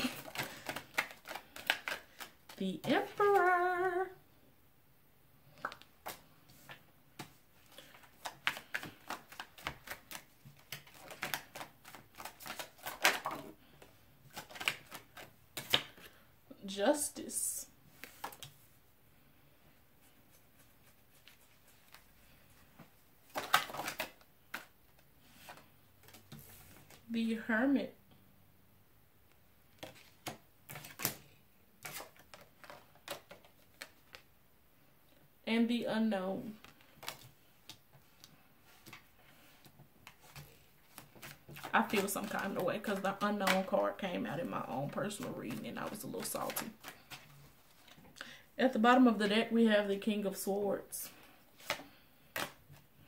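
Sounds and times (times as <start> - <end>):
cards being shuffled: 0.0 - 3.7, 5.6 - 16.2, 17.9 - 18.6, 20.3 - 27.1, 29.7 - 34.3, 36.6 - 44.0, 44.6 - 48.1, 51.2 - 52.9.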